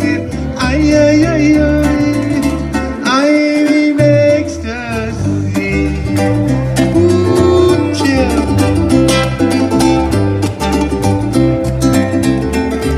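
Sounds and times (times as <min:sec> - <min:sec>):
person singing: 0:00.0 - 0:09.0
upbeat ukulele guitar and bass: 0:00.0 - 0:12.9.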